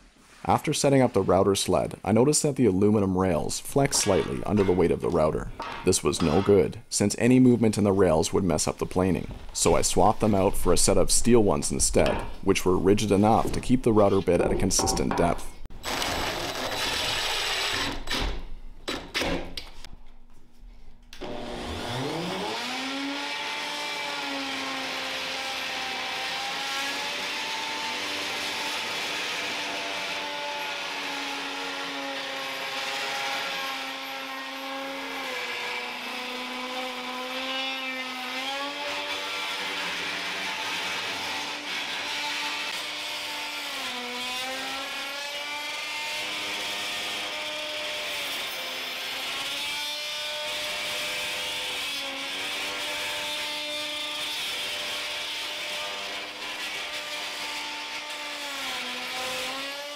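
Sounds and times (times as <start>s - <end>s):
electric router whining: 21.1s - 44.4s.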